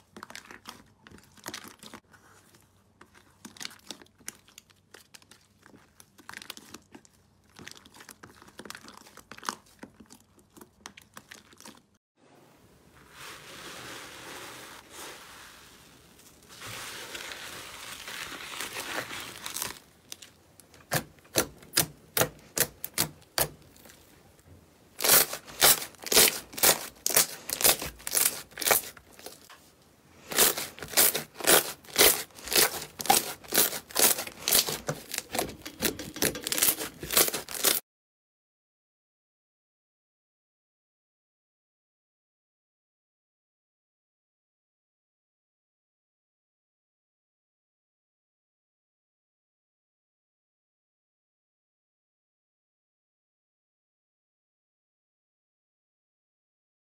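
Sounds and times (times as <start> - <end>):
slime hissing and tearing: 25.0 - 29.4, 30.2 - 35.5, 36.5 - 37.8.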